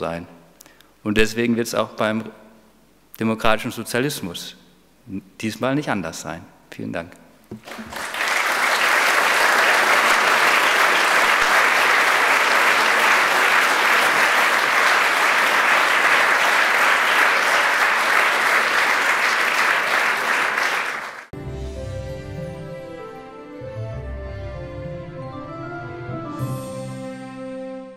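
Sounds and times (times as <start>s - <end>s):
audience applauding: 7.6s - 21.3s
music: 21.4s - 27.9s.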